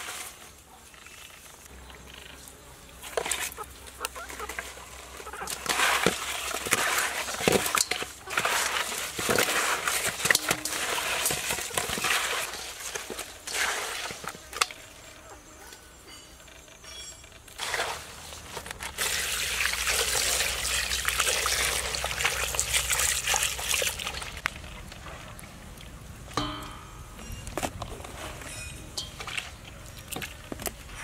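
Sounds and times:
wet rubbing and squelching: 0:03.0 - 0:14.7.

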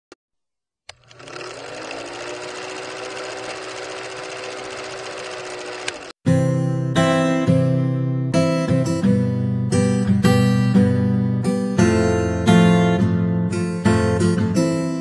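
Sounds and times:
film projector clattering: 0:00.9 - 0:06.2
acoustic guitar music: 0:06.3 - 0:15.0.

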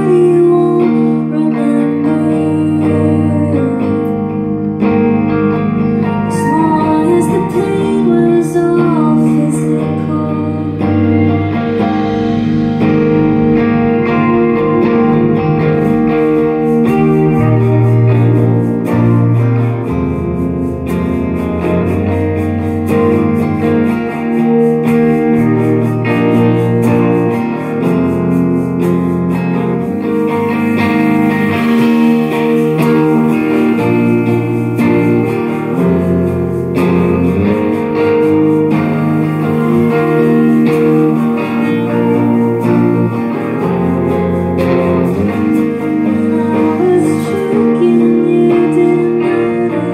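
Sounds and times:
electric guitar chords: 0:00.0 - 0:49.9
drums: 0:04.0 - 0:49.6
cymbal crashes: 0:10.8 - 0:47.4.

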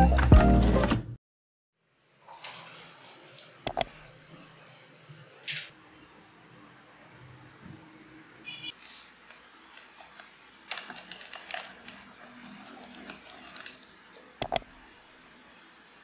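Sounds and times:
foil sachet crinkling: 0:09.7 - 0:14.1.

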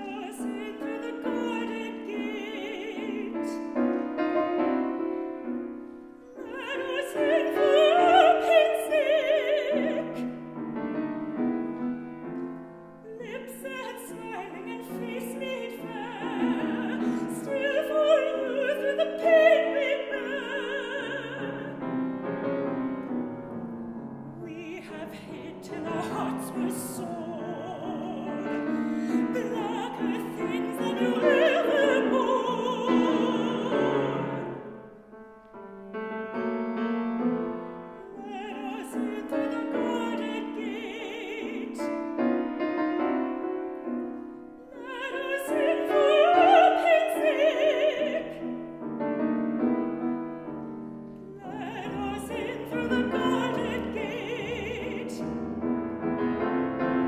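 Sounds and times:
woman singing with vibrato: 0:00.0 - 0:03.8, 0:06.3 - 0:10.4, 0:13.0 - 0:21.9, 0:24.4 - 0:34.8, 0:38.0 - 0:42.1, 0:44.7 - 0:48.7, 0:51.2 - 0:55.4
grand piano: 0:00.0 - 0:57.0.

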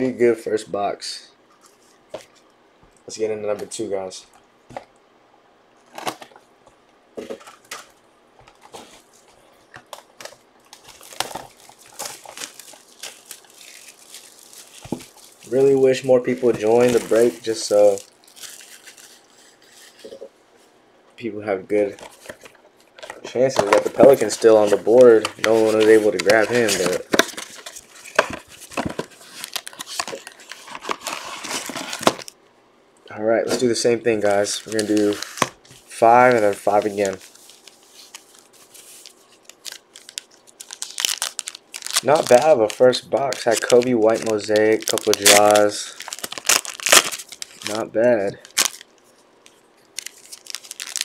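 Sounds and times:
plastic wrap crinkling and tearing: 0:09.9 - 0:20.2, 0:22.0 - 0:32.4, 0:34.2 - 0:51.0
packaging clicks: 0:39.4 - 0:47.8, 0:50.0 - 0:51.0.

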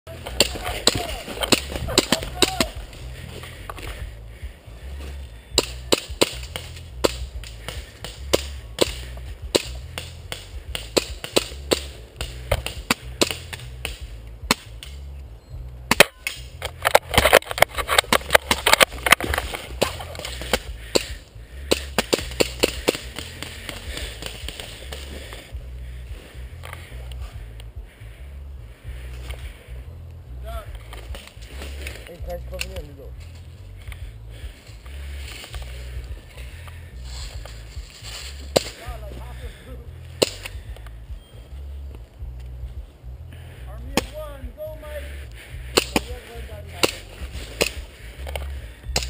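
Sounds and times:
footsteps crunching dry leaves: 0:30.9 - 0:40.1.

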